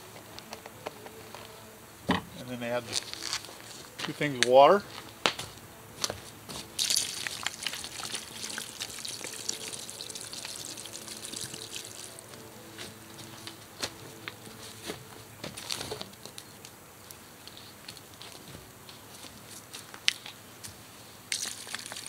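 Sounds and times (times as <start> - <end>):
water pouring into pot: 6.8 - 12.3, 21.3 - 22.0.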